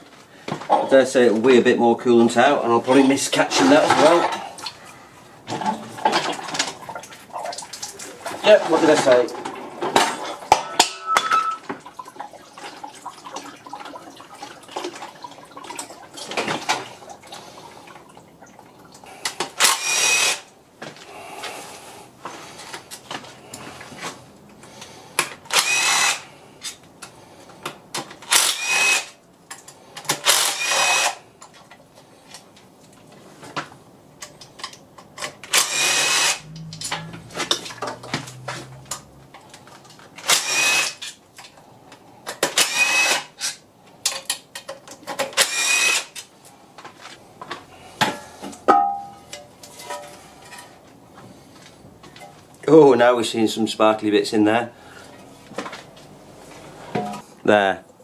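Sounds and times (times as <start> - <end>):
power driver whirring: 19.6 - 20.4, 25.5 - 26.3, 28.3 - 29.1, 30.2 - 31.2, 35.5 - 36.7, 40.2 - 41.0, 42.5 - 43.3, 45.4 - 46.1.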